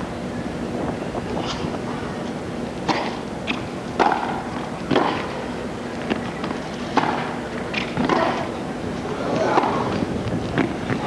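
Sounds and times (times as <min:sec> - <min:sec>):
crowd and stadium ambience: 0:00.0 - 0:11.0
tennis ball hit by rackets: 0:02.9 - 0:05.3, 0:06.9 - 0:08.5, 0:09.4 - 0:09.9.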